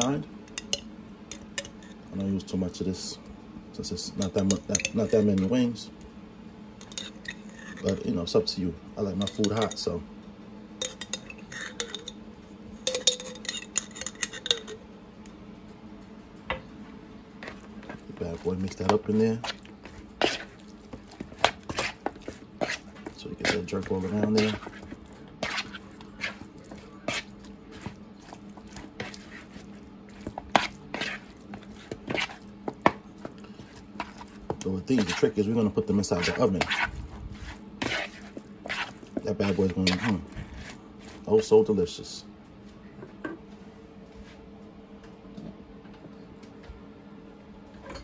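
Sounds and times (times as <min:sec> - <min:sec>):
faint steady hum: 0:00.0 - 0:48.0
metal utensil scraping a bowl: 0:06.8 - 0:08.0, 0:10.8 - 0:12.2, 0:17.4 - 0:33.0, 0:33.6 - 0:41.2
metal spoon scraping glass jar: 0:10.8 - 0:12.1, 0:12.9 - 0:14.8, 0:21.4 - 0:22.8, 0:23.4 - 0:26.4, 0:30.6 - 0:31.3, 0:35.0 - 0:35.4.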